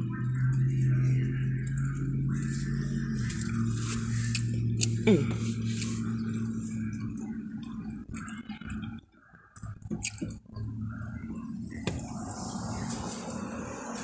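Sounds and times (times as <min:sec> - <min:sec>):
person chewing: 0:03.2 - 0:08.9.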